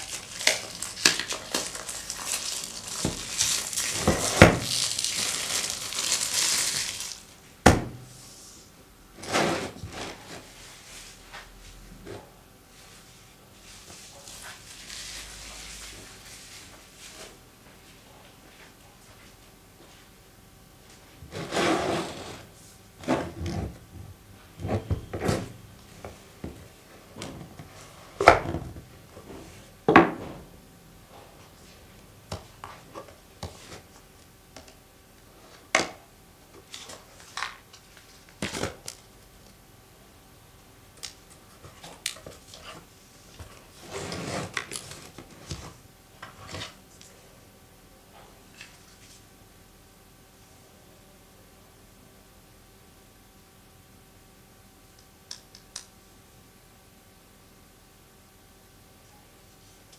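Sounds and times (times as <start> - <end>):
packaging rubbing and sliding: 0.0 - 7.3, 43.7 - 45.8.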